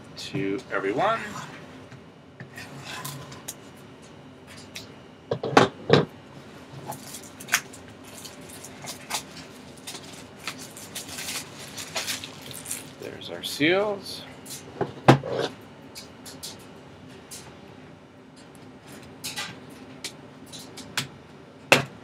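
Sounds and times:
plastic shrink-wrap crinkling: 6.9 - 13.2.

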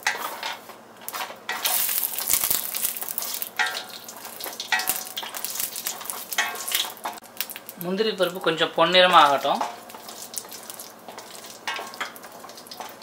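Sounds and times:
nuts sizzling in oil: 1.1 - 13.0.

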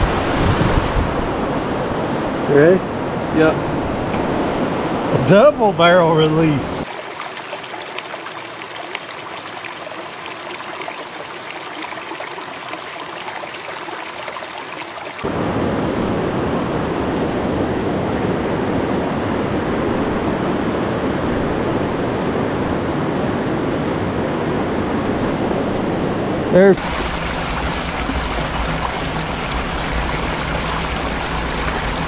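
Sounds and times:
river riffles rushing: 6.8 - 15.3, 26.8 - 32.0
river water lapping and splashing: 6.8 - 15.3, 26.8 - 32.0.

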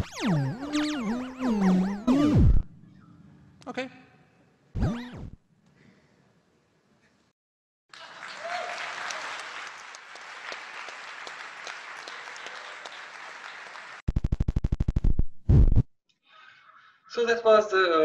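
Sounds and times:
loud rapid buzzing pulse: 0.0 - 2.8, 4.8 - 5.4, 14.1 - 15.9
large audience applauding: 7.9 - 14.0.

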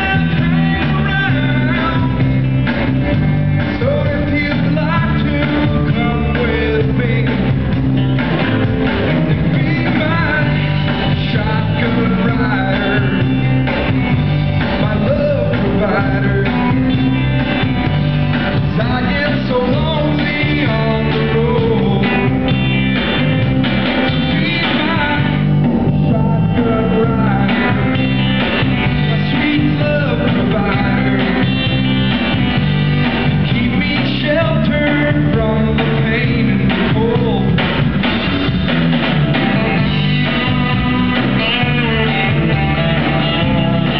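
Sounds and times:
man singing: 0.0 - 7.8, 9.0 - 17.6, 18.4 - 22.6, 24.1 - 31.8, 33.2 - 37.8, 39.7 - 43.9
drums: 0.0 - 43.9
electric guitar: 0.0 - 43.9.

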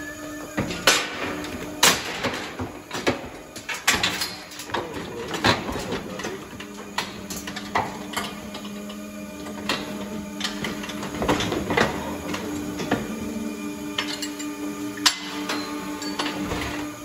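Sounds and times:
steady low hum: 0.0 - 17.0
metal clanks and knocks: 0.5 - 13.2.

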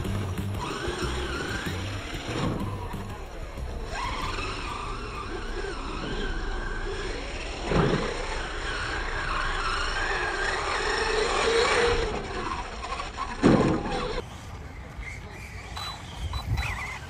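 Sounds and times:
music: 0.0 - 4.7
electric motor whining: 0.0 - 14.2
tyres skidding: 0.0 - 17.0.

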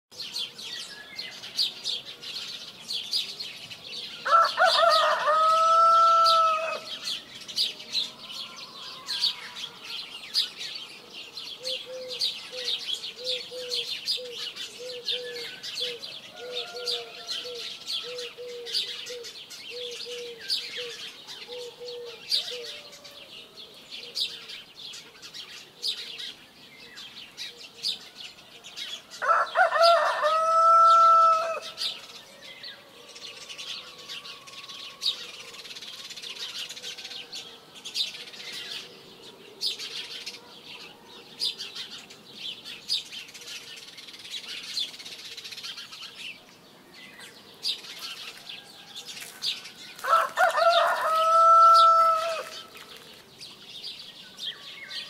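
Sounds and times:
small birds chirping: 0.1 - 55.0
rooster crowing: 4.2 - 7.0, 8.0 - 10.1, 16.3 - 18.4, 29.2 - 31.8, 48.6 - 52.7.

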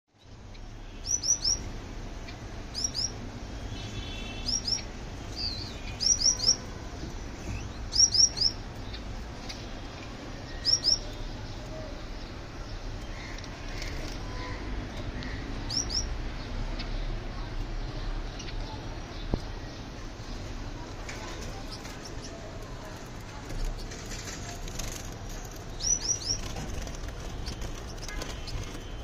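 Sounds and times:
finches chirping: 0.2 - 9.7, 10.4 - 14.6, 15.2 - 17.1, 25.3 - 29.0.

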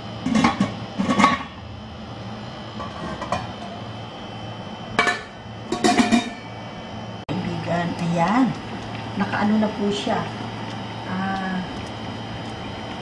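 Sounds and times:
steady low hum: 0.0 - 13.0
steel bowls clattering: 5.0 - 6.4.

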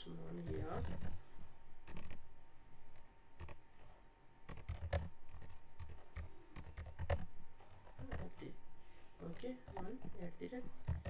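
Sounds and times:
computer keyboard typing: 1.8 - 2.2, 2.9 - 3.6, 4.4 - 8.5.

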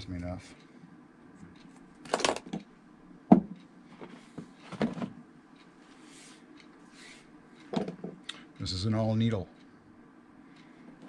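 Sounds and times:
soft knocks: 3.3 - 3.6.

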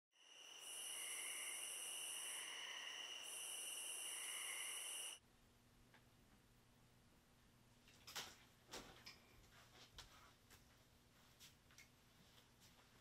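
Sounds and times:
crickets and night insects trilling: 0.2 - 5.2
faint low room hum: 4.9 - 13.0.

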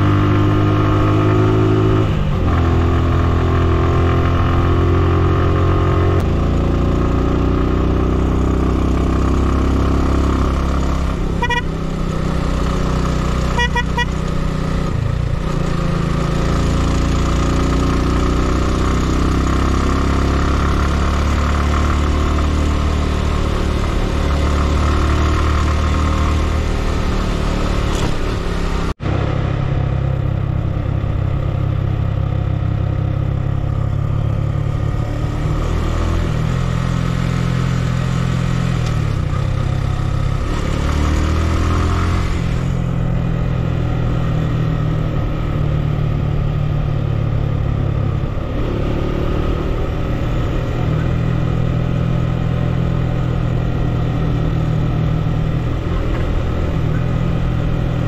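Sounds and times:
vehicle engine running: 10.9 - 17.7.

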